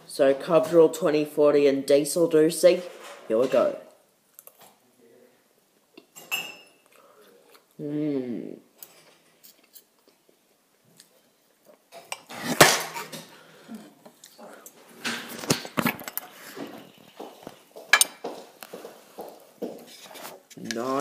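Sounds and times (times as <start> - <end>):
cutlery and dishes clinking: 6.0 - 6.9, 8.8 - 10.1, 11.9 - 13.3, 14.6 - 18.4.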